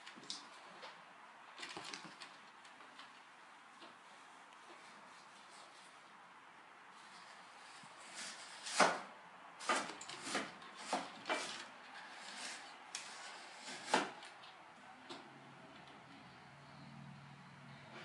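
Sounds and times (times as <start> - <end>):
claws scratching on cane chair: 7.0 - 9.0, 9.6 - 14.3.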